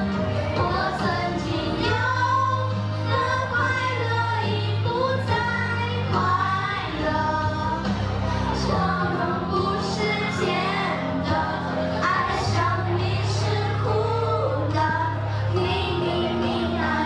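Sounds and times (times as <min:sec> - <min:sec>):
instrumental backing with bass: 0:00.0 - 0:17.0.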